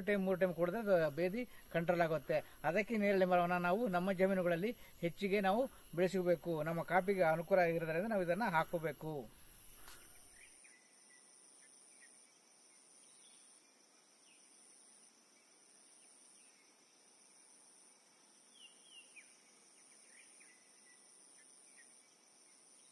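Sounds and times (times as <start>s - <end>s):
insects droning: 0.0s - 22.9s.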